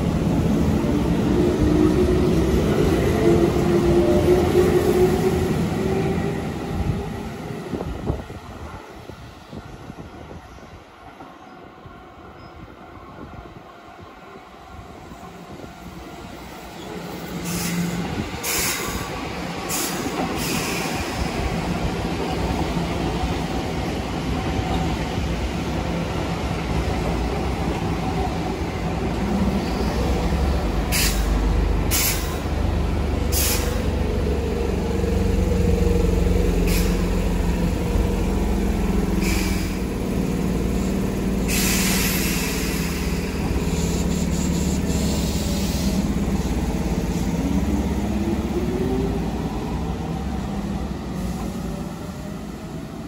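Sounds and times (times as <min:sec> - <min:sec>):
electric train rumbling: 0:00.0 - 0:53.0
air brake hisses: 0:30.9 - 0:32.4, 0:33.3 - 0:33.9, 0:36.6 - 0:37.1, 0:39.2 - 0:39.8, 0:41.4 - 0:46.1.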